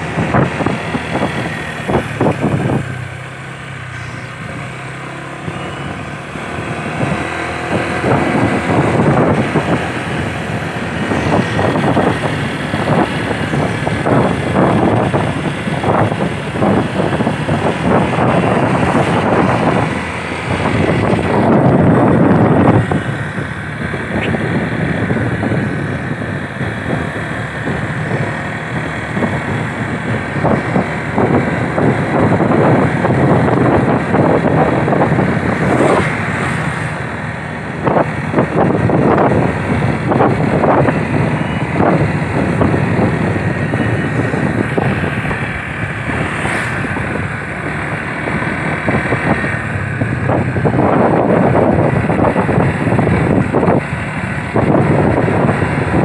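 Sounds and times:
vehicle engine on road: 0.0 - 56.0
wind on microphone: 0.0 - 56.0.

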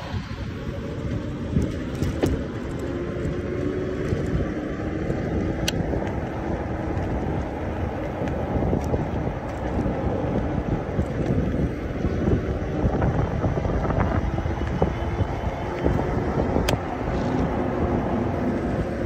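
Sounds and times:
bicycle tyres rumbling on asphalt: 0.0 - 19.0
wind buffeting microphone: 0.0 - 19.0.

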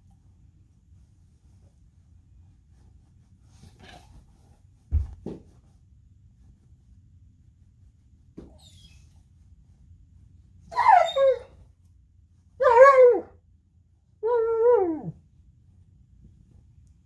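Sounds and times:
dog crying: 10.7 - 11.6.

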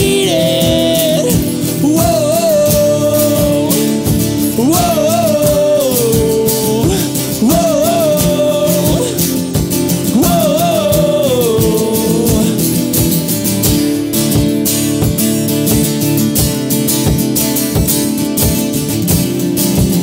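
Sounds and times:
wordless sung vocal: 0.0 - 13.3
acoustic guitars strummed: 0.0 - 20.0.

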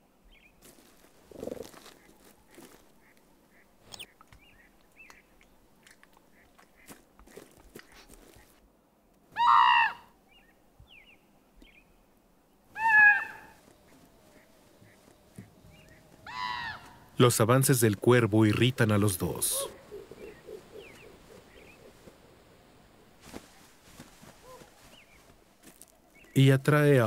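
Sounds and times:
faint ticks and rustles: 0.3 - 9.3, 13.4 - 27.0
raven harsh calls: 9.3 - 10.2, 12.7 - 17.8, 18.6 - 22.5.

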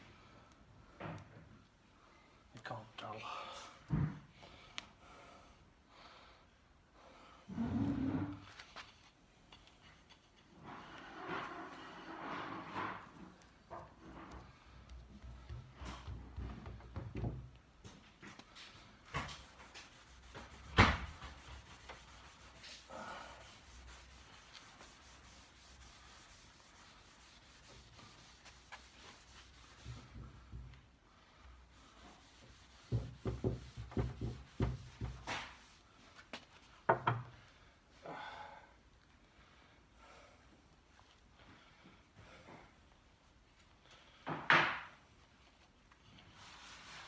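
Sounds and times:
pad rubbing on wood: 19.1 - 30.5, 31.7 - 35.8.

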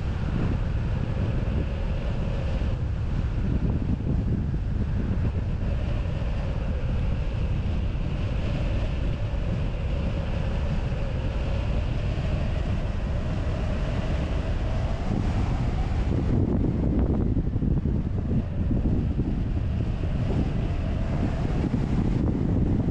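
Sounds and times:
wind buffeting microphone: 0.0 - 22.9.

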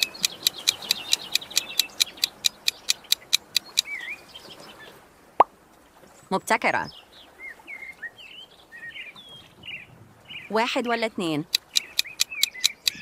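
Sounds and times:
rapid even ticking: 0.0 - 3.9, 11.4 - 13.0
birds chirping: 0.0 - 5.0, 6.8 - 13.0.

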